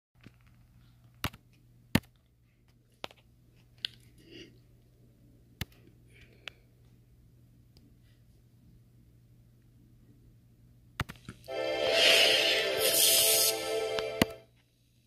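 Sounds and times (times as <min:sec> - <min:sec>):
faint low hum: 0:00.2 - 0:11.5.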